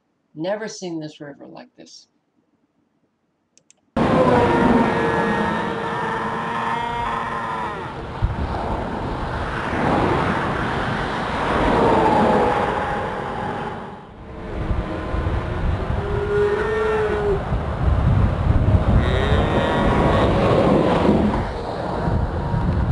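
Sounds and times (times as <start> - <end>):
steady rushing noise: 4.0 - 22.9
calves bawling: 4.3 - 8.0.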